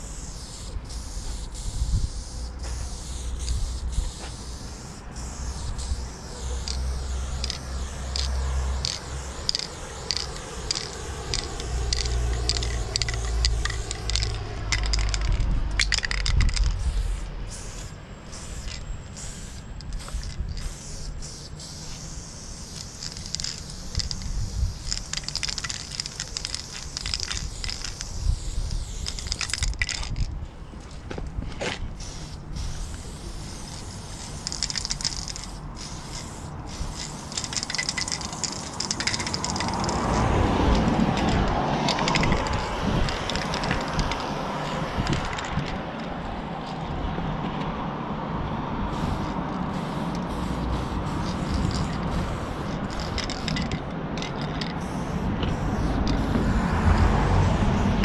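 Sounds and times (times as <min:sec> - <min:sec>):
spray paint can hissing: 0:00.0 - 0:30.3, 0:31.6 - 0:45.8, 0:48.9 - 0:58.0
low traffic rumble: 0:00.0 - 0:58.0
rushing noise: 0:36.5 - 0:58.0.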